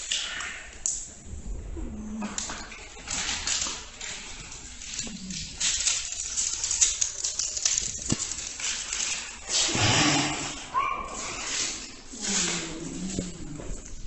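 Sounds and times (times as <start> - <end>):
plastic wrappers crinkling: 2.2 - 9.8, 10.8 - 14.0.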